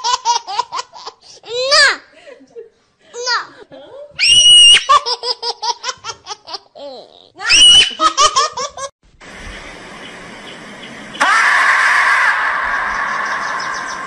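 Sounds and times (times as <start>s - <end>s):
high-pitched laughter: 7.5s - 8.9s
steady hiss: 9.1s - 11.3s.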